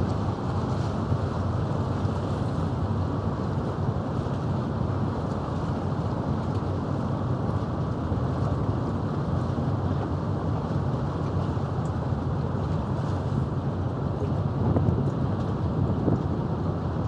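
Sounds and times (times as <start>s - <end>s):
sea water washing against concrete: 0.0s - 17.0s
wind buffeting microphone: 0.0s - 17.0s.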